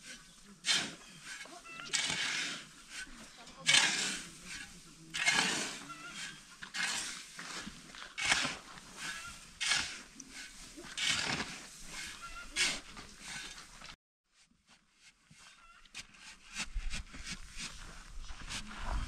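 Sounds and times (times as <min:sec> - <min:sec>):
animal rasping call: 0:05.2 - 0:07.0, 0:08.2 - 0:10.0, 0:12.0 - 0:13.4.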